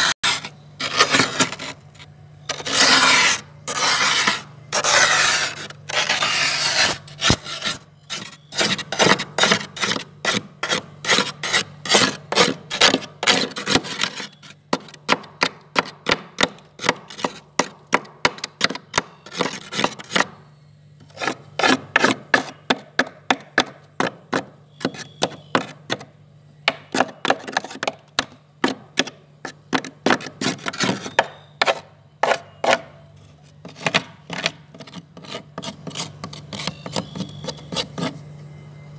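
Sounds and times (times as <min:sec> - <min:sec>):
frost scraping in freezer: 0:00.0 - 0:17.8, 0:18.4 - 0:20.4, 0:21.0 - 0:22.9, 0:29.0 - 0:38.3
low steady hum: 0:00.0 - 0:38.9.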